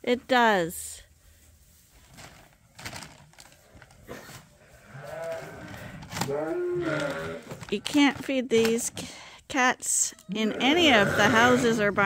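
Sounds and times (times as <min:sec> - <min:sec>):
sheep bleating: 0:04.9 - 0:07.6, 0:10.3 - 0:12.0.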